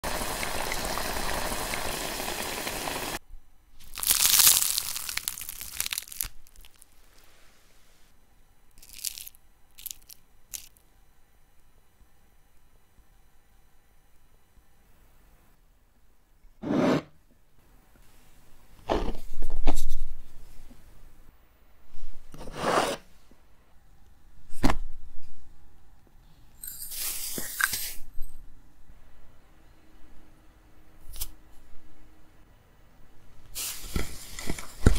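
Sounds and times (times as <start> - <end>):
food sizzling in frying oil: 0.0 - 3.2
fried fritter crunching: 3.8 - 7.0, 8.8 - 10.7
soft rustle of ingredients: 3.8 - 8.1, 8.7 - 10.9
sugar pouring trickle: 3.9 - 7.2, 8.8 - 10.7.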